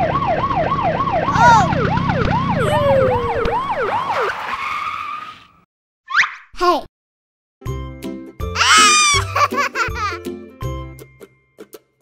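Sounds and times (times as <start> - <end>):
police siren yelping: 0.0 - 4.7
vehicle noise: 1.0 - 5.6
falling screech: 8.6 - 9.2.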